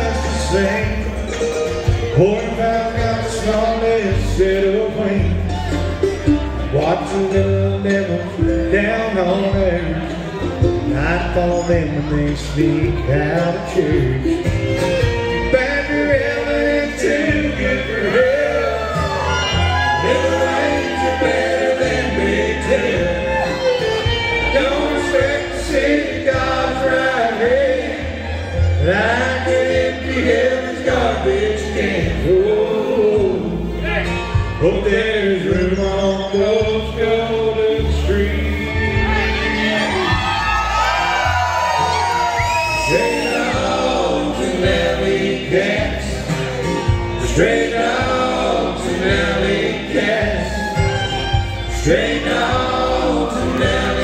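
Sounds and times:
people singing: 0.0 - 1.3, 15.3 - 33.9, 34.6 - 54.0
acoustic guitars: 0.0 - 54.0
bluegrass band playing: 0.0 - 54.0
fiddle: 0.0 - 54.0
upright bass: 0.0 - 54.0.

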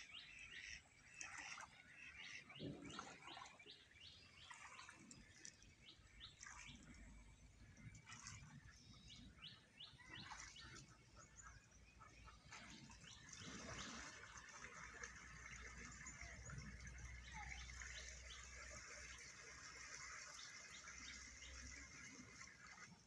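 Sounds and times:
water splashing in stream: 0.0 - 23.0
faint bird chirps: 7.9 - 14.2.

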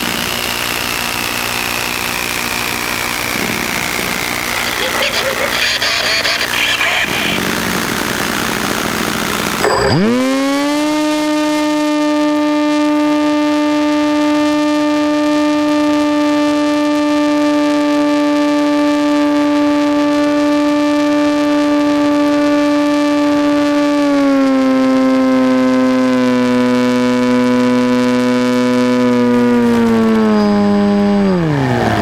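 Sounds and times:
electric motor whine: 0.0 - 6.1, 7.0 - 32.0
rough noisy rush: 0.0 - 10.8.

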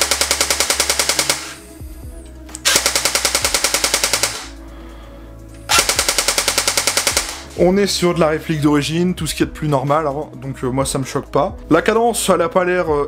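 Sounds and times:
airsoft gun mechanical clicking: 2.5 - 4.5, 5.7 - 7.5.

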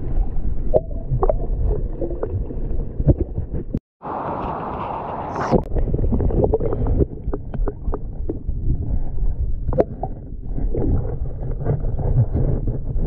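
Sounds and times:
underwater water rumble: 0.0 - 13.0
underwater clicks and ticks: 5.6 - 13.0.

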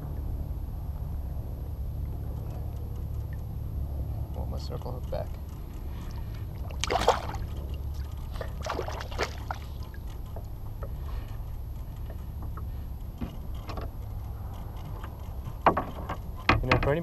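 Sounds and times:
steady low rumble: 0.0 - 17.0
fish splashing in water: 6.0 - 11.0.

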